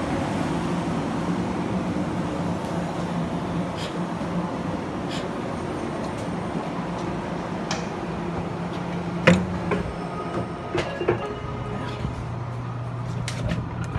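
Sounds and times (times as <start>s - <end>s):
train electric hum: 0.0s - 13.9s
footstep clunks: 8.7s - 11.2s.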